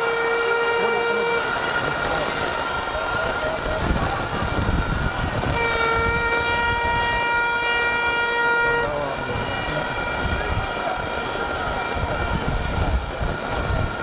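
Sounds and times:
faint horn tone: 0:00.0 - 0:03.0
horn long steady note: 0:00.0 - 0:14.0.

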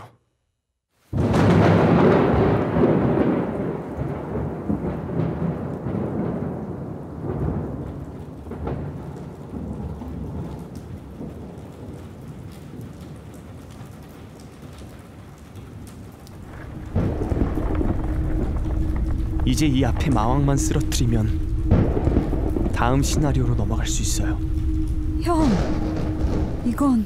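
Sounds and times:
steady rain: 0:00.9 - 0:27.0
loud thunderclap rumbling: 0:01.1 - 0:27.0.

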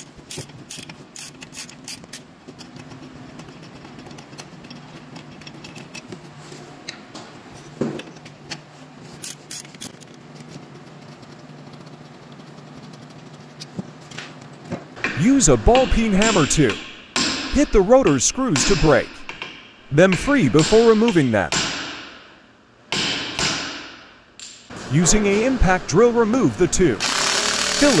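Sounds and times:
ratchet clicking: 0:00.0 - 0:06.0, 0:27.0 - 0:28.0.

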